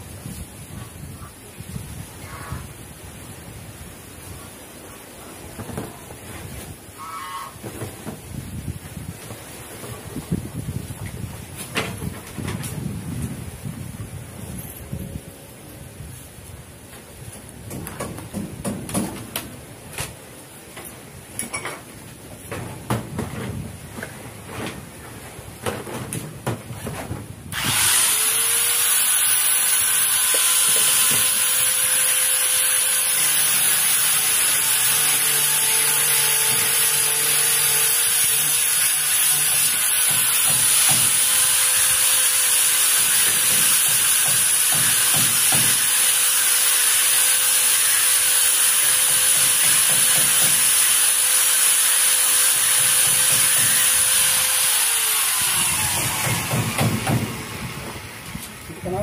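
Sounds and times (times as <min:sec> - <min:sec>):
angle grinder cutting plastic pipe: 0:27.5 - 0:58.6.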